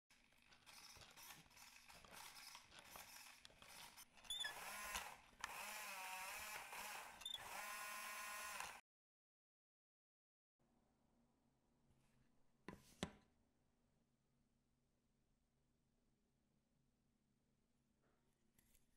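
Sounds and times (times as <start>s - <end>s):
small gear motors whining: 0.1s - 8.8s.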